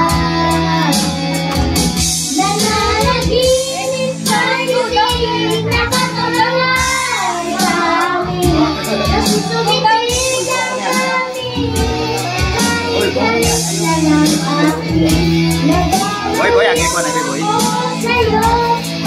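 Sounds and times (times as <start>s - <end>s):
backing music with steady beat: 0.0s - 19.0s
girl singing into microphone: 0.0s - 19.0s.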